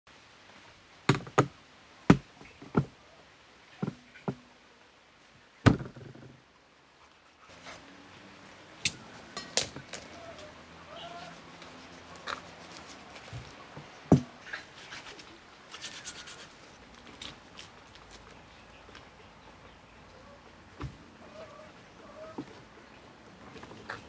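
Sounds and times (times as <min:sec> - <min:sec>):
knife knocking on a wooden board: 0:03.8 - 0:04.4.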